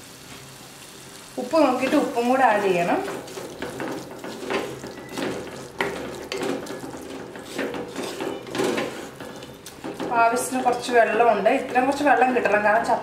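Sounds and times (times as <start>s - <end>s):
food sizzling: 0.0s - 13.0s
wooden spatula scraping clay pot: 1.8s - 10.3s.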